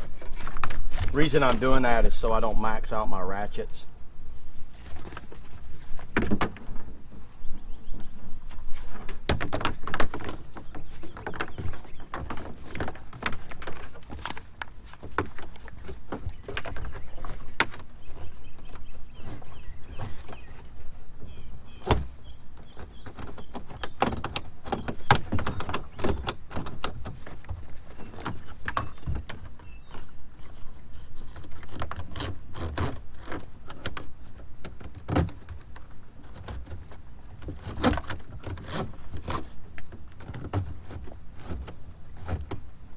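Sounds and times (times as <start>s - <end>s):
plastic parts knocking and rattling: 8.9s - 19.4s, 22.7s - 30.1s.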